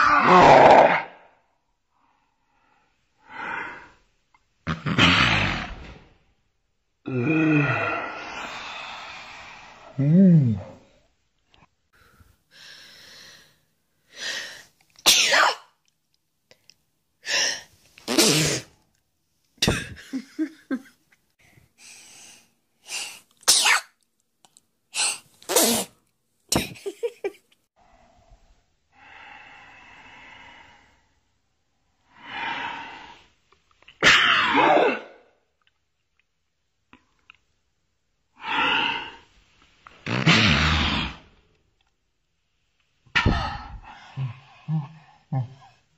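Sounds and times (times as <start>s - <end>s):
drawn-in breath: 7.6s - 10.0s, 11.9s - 14.8s, 21.4s - 23.3s, 28.9s - 31.4s
woman sneezing: 15.1s - 15.7s, 23.4s - 23.9s, 34.0s - 35.2s.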